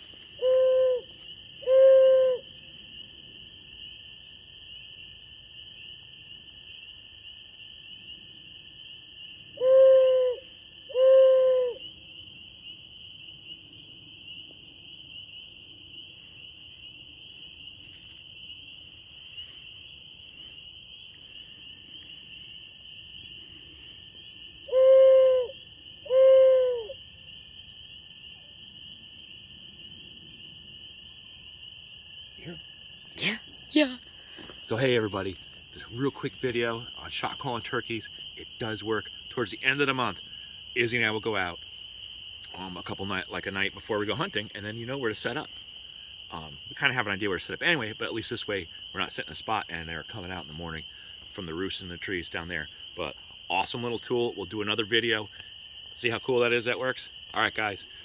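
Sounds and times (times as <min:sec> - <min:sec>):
owl hoot call: 0:00.0 - 0:02.6, 0:09.5 - 0:12.0, 0:24.6 - 0:27.0
spring peepers chorus: 0:00.0 - 0:58.0.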